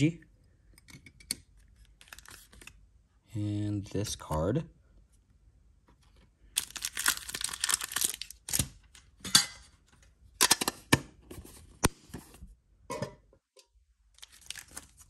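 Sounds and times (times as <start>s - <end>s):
foil wrappers crinkling: 6.6s - 9.0s, 14.2s - 15.0s.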